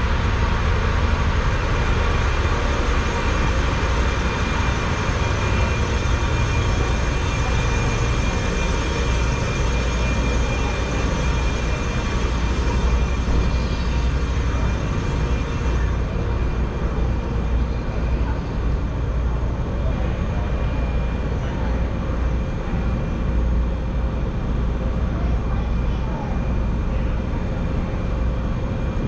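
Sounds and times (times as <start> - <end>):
ship engines low rumble: 0.0 - 29.0.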